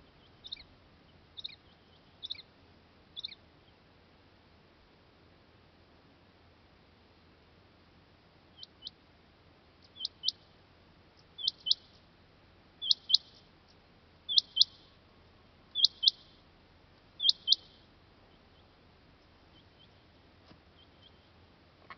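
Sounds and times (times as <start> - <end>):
quail calling: 0.0 - 0.7, 9.9 - 10.4, 11.4 - 11.9, 12.8 - 13.4, 14.3 - 14.9, 15.7 - 16.4, 17.2 - 18.7.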